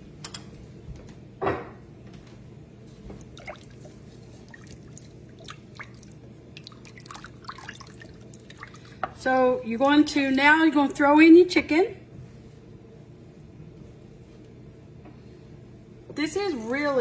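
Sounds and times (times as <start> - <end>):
steady low hum: 0.0 - 17.0
liquid sloshing in pot: 3.0 - 10.6.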